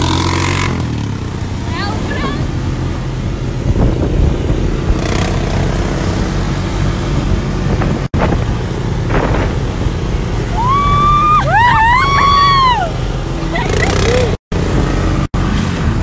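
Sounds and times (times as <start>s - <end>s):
quad bike engine running: 0.0s - 16.0s
woman whooping: 10.5s - 13.0s.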